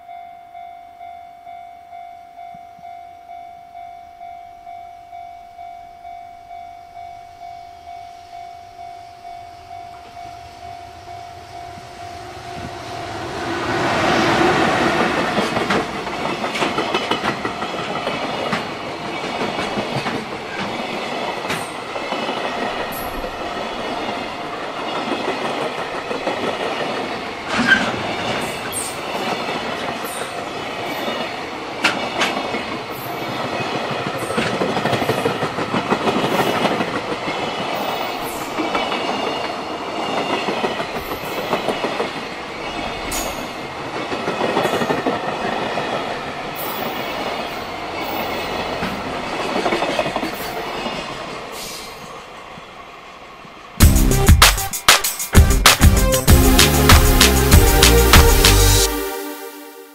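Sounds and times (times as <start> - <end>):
train wheels rumbling on rails: 10.0 - 53.8
wheels clicking over rail joints: 31.8 - 51.8.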